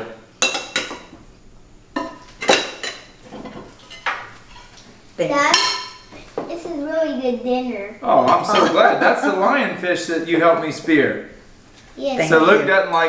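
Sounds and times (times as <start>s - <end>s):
dishes clattering: 0.4s - 1.2s, 2.0s - 4.8s, 5.5s - 6.4s, 8.2s - 9.0s
plates and cutlery clinking: 2.0s - 4.9s, 5.5s - 6.4s, 8.2s - 9.1s.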